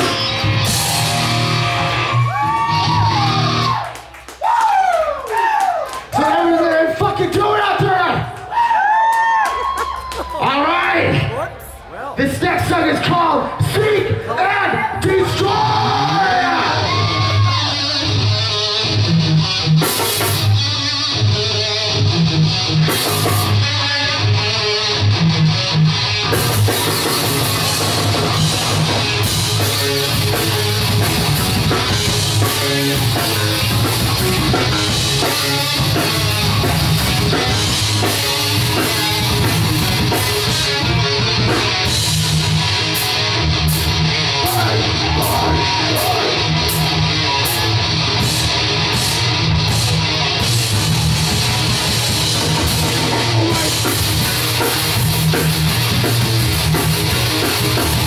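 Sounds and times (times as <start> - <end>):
drum kit and cymbals: 0.0 - 3.7, 19.7 - 20.6, 26.2 - 58.0
distorted electric guitar riffs: 0.0 - 3.8, 12.6 - 58.0
bass guitar: 0.0 - 4.2, 10.2 - 58.0.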